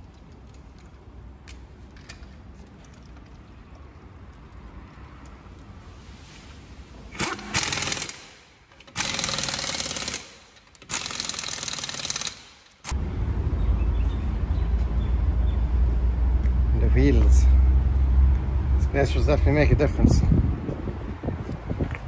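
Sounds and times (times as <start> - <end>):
pneumatic impact wrench hammering: 7.1 - 13.0
steady low rumble: 12.9 - 22.0.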